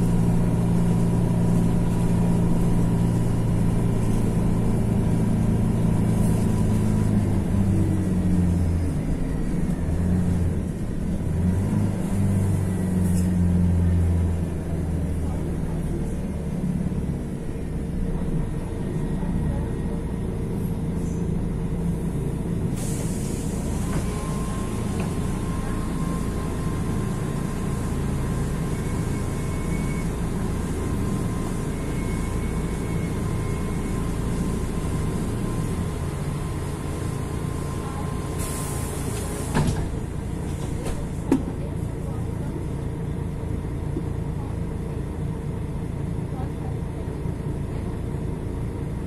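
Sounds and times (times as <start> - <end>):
diesel bus engine running: 0.0 - 49.0
compressed air hiss: 22.8 - 23.8.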